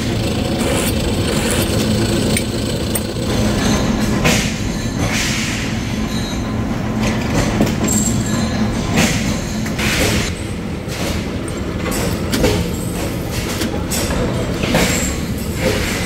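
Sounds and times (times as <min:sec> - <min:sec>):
drill press drilling steel: 0:00.0 - 0:04.2
machinery motor hum and rumble: 0:00.0 - 0:05.2.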